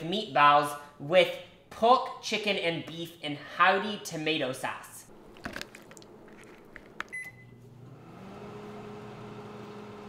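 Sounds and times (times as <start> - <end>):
microwave oven humming: 7.0 - 10.0
microwave keypad beep: 7.1 - 7.6.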